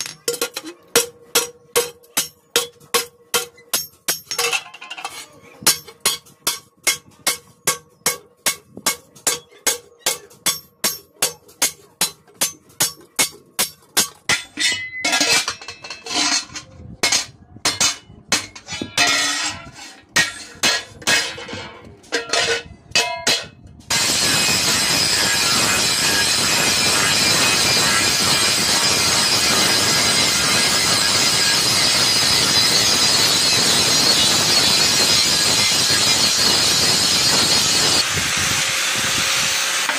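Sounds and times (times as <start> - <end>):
hammer striking sheet iron: 5.7 - 32.0
angle grinder grinding metal: 23.9 - 39.9.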